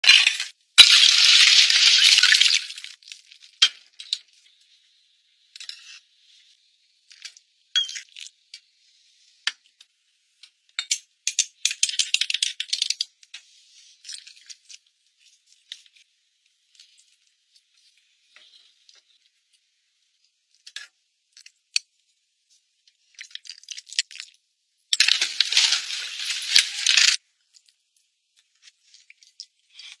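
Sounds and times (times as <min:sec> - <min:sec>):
scraping or rustling: 0:25.0 - 0:27.2.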